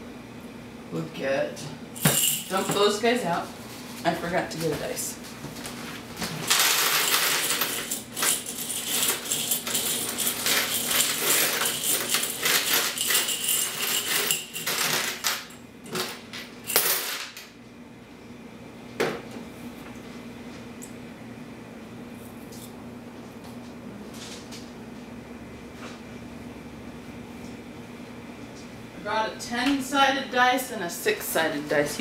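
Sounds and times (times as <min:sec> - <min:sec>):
coins clinking: 0:02.0 - 0:02.8, 0:06.5 - 0:16.1, 0:16.7 - 0:17.4
coins clattering onto table: 0:06.5 - 0:17.5.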